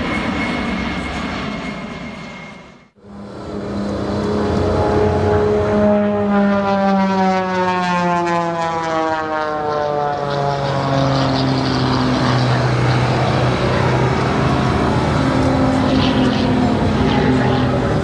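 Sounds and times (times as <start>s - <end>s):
aircraft engine drone: 0.0s - 18.0s.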